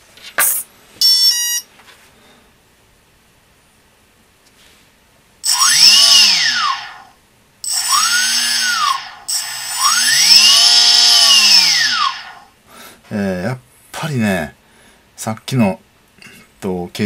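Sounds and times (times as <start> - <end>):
electric motor whine rising and falling: 5.4 - 12.6.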